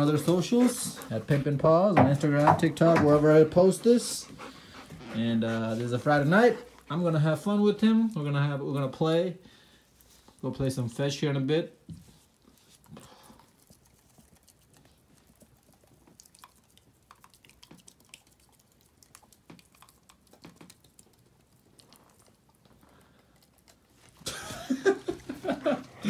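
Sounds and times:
puppy nibbling on a hand: 11.9 - 24.3.

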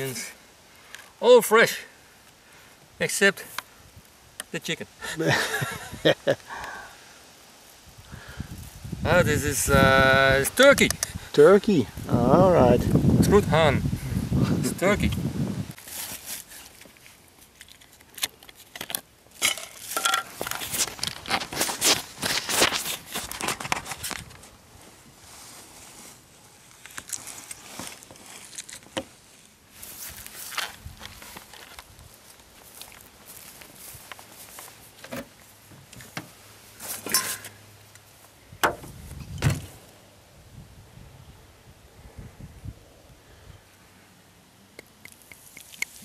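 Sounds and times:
handling knocks and clicks: 16.8 - 21.9.

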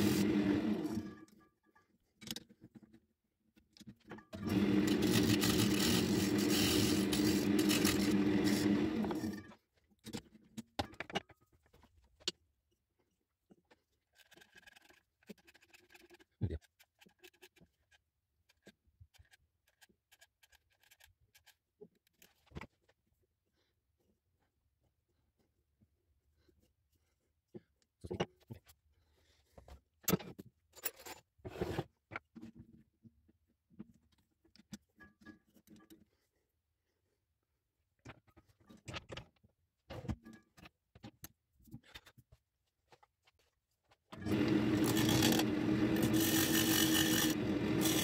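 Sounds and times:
wood lathe motor running: 0.0 - 1.1, 4.4 - 9.4, 44.2 - 48.0.

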